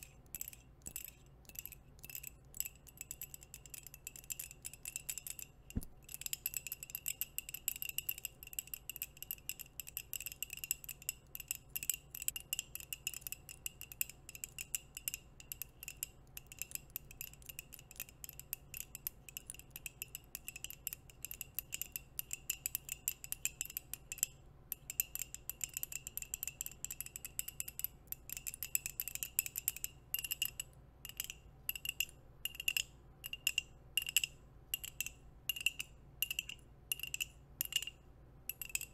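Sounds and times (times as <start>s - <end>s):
fingernails tapping on a mug: 4.3s - 8.3s.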